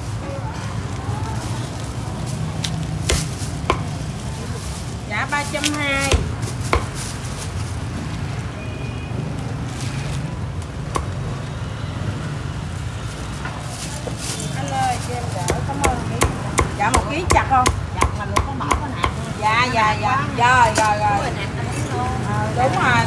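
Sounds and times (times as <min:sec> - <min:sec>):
cleaver knocking on wood: 0:03.1 - 0:03.9, 0:06.0 - 0:07.0.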